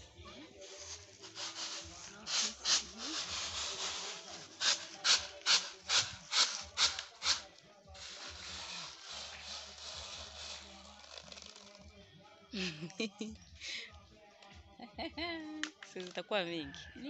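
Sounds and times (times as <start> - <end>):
hands rustling through beans: 0.5 - 11.9
beans rattling in basket tray: 0.6 - 11.8.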